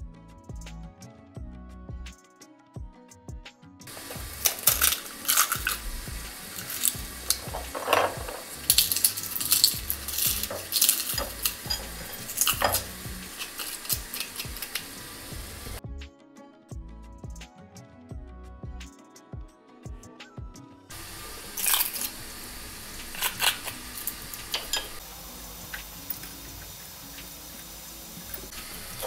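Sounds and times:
food sizzling in a pan: 3.9 - 15.8, 20.9 - 29.0
utensil scraping a pan: 3.9 - 15.8, 20.9 - 25.0.

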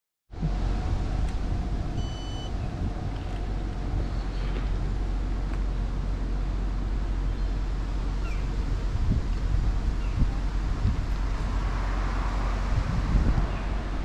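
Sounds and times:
vehicle idling: 0.3 - 14.0
wind rumble on microphone: 0.3 - 14.0
short electronic beep: 2.0 - 2.5.

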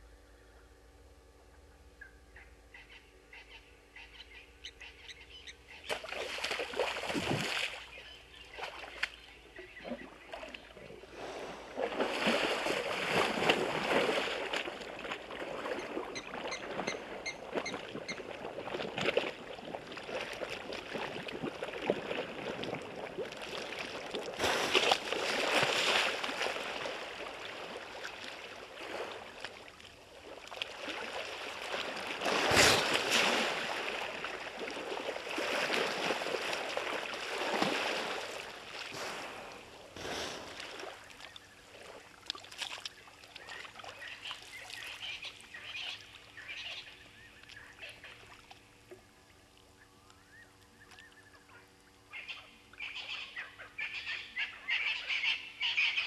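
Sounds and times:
water splashing and sloshing: 5.8 - 49.8.

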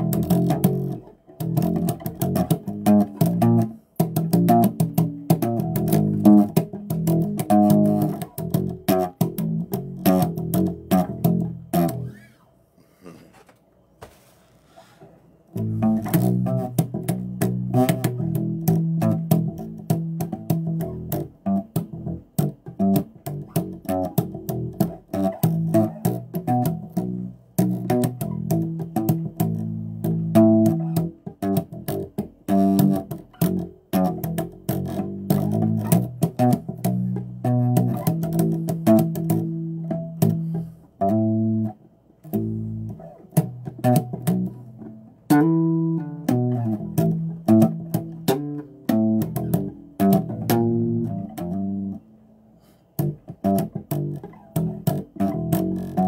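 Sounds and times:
electric bass guitar solo: 0.0 - 12.5, 15.5 - 52.0, 53.0 - 56.0.

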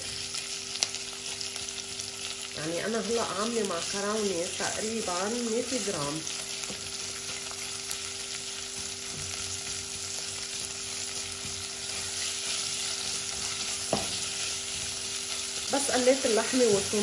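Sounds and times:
meat sizzling in oil: 0.0 - 17.0
spatula stirring in a pot: 6.4 - 17.0.

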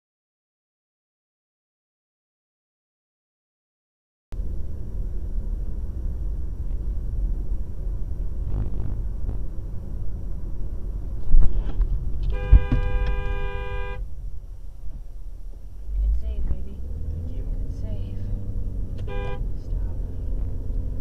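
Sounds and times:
car road and engine rumble: 4.3 - 21.0
loud low thump: 11.3 - 13.5
car horn blast: 12.2 - 14.1, 19.0 - 19.6.

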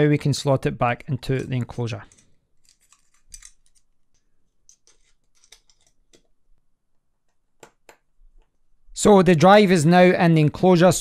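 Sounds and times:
small parts clicking and scraping: 1.3 - 6.3.

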